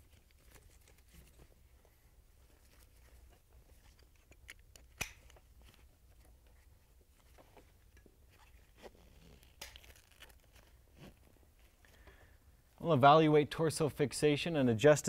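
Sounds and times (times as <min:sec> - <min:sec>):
rustling of webbing straps: 0:00.0 - 0:12.6
buckle clicks: 0:02.8 - 0:06.6.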